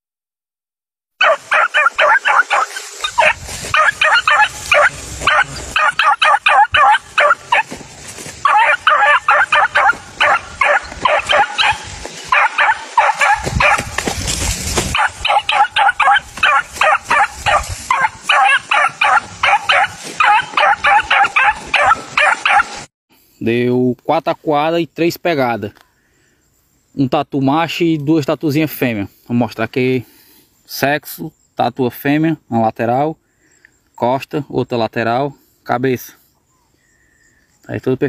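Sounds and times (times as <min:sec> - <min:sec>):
dog yelping rapidly: 0:01.2 - 0:07.7, 0:08.4 - 0:14.0, 0:14.9 - 0:22.9
wind rumbling on microphone: 0:03.0 - 0:22.2.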